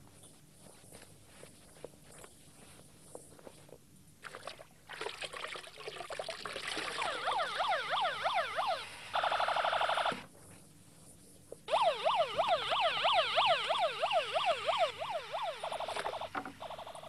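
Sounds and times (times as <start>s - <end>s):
electronic siren yelp: 6.9s - 10.2s, 11.7s - 17.0s.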